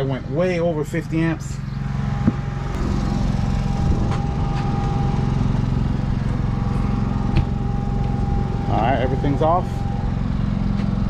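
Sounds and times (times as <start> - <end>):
generator engine running: 0.0 - 11.0
thin steady whine: 0.0 - 11.0.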